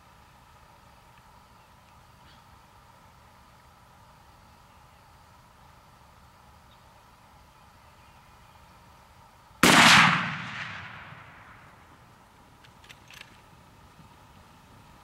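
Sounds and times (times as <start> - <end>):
rifle shot: 9.6 - 11.8.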